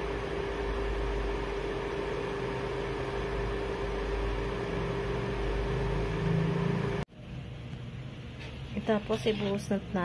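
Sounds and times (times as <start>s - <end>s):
constant low hum: 3.0s - 10.0s.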